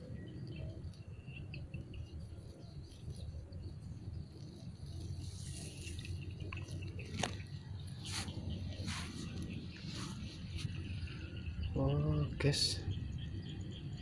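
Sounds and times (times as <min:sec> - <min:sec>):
insects and birds chirping: 0:00.0 - 0:14.0
rustling hiss: 0:04.2 - 0:11.0.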